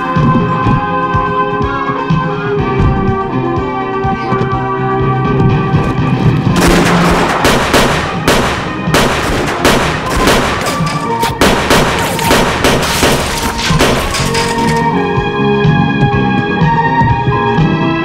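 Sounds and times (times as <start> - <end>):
film music score: 0.0 - 18.0
rapid gunfire: 6.6 - 14.9.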